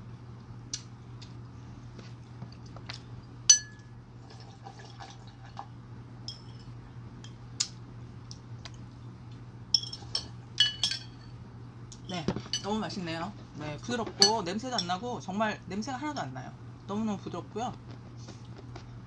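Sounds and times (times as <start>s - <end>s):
low steady hum: 0.0s - 19.0s
metal spoon clinking on bowl: 9.7s - 11.3s, 14.2s - 15.0s.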